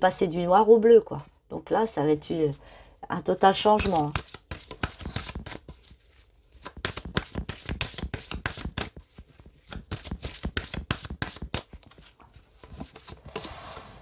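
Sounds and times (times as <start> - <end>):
cards being shuffled by hand: 3.8 - 13.3.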